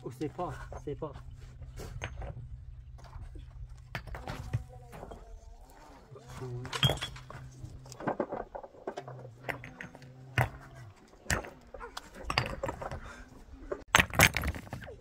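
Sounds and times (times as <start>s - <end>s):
stones knocking against stones: 6.7s - 15.0s.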